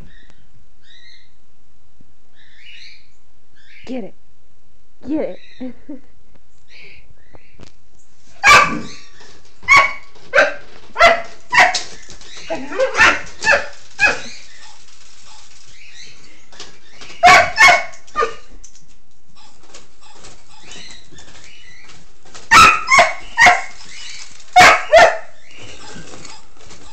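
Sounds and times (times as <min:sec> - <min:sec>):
dog barking sharply: 0:08.4 - 0:08.9, 0:09.7 - 0:11.9, 0:12.7 - 0:14.3, 0:17.2 - 0:18.5, 0:22.5 - 0:23.7, 0:24.6 - 0:25.3.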